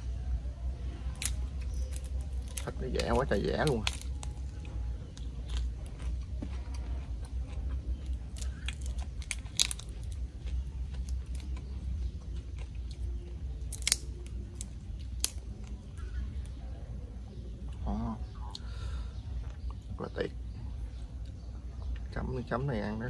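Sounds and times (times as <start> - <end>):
low steady rumble: 0.0 - 23.0
prawn shells crackling: 1.0 - 16.6
sharp cracks: 1.1 - 4.3, 13.7 - 15.8
chewing: 3.6 - 16.2.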